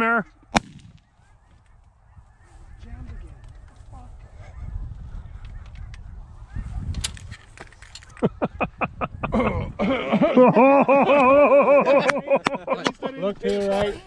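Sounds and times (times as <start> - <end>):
wind rumbling on microphone: 0.6 - 10.3.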